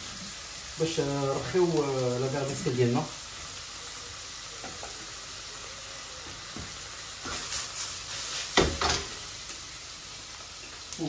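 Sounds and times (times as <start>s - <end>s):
vegetables sizzling in a wok: 0.0s - 11.0s
wok scraping on burner: 7.2s - 9.3s
wok knock: 8.6s - 9.2s.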